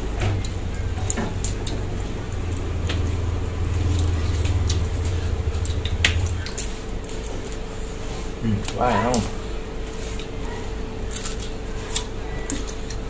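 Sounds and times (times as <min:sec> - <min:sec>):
low rumble: 0:00.0 - 0:08.2
squishy chewing: 0:00.4 - 0:13.0.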